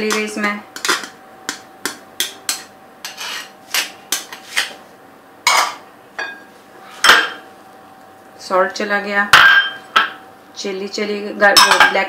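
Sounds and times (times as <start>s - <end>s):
spoon scraping glass bowl: 3.0s - 3.6s.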